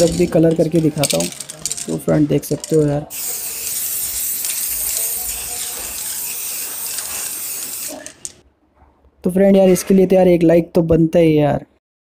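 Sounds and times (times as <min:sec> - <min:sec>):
spray can hissing: 0:03.1 - 0:08.4.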